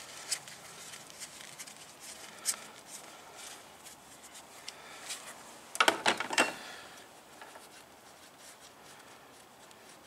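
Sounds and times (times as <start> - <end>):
faint rubbing: 6.9 - 10.0.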